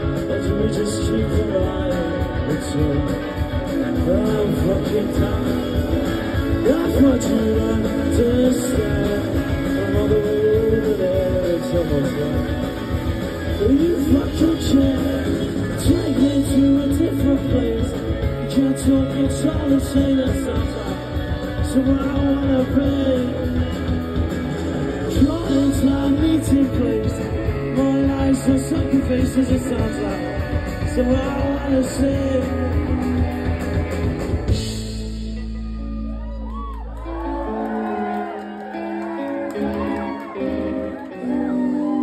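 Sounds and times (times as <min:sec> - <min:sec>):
person singing: 0:00.0 - 0:12.6, 0:13.5 - 0:24.0, 0:25.0 - 0:33.3
drums: 0:00.0 - 0:42.0
electric guitar: 0:00.0 - 0:42.0.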